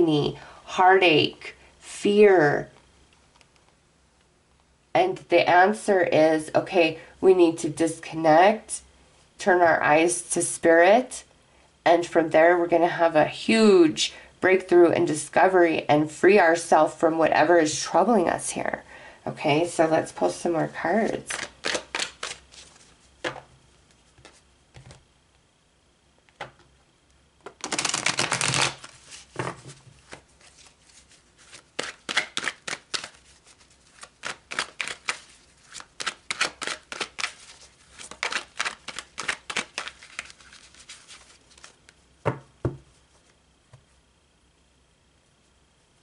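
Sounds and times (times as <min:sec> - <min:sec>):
cards being shuffled: 0:21.1 - 0:23.5, 0:24.1 - 0:25.0, 0:27.4 - 0:43.4
rapid card flicks: 0:31.8 - 0:33.2.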